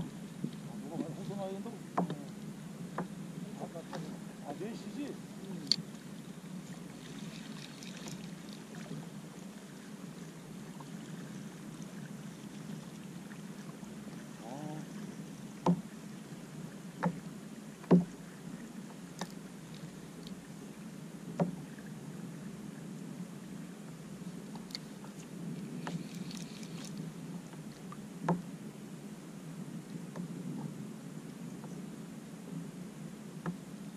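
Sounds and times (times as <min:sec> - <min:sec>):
water lapping against kayak hull: 0:00.0 - 0:28.6
short sharp knocks: 0:17.9 - 0:18.1.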